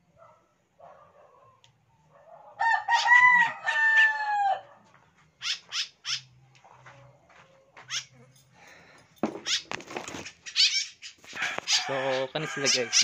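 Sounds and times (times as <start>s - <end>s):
rooster crowing: 2.3s - 4.7s, 11.4s - 13.0s
small birds chirping: 4.9s - 13.0s.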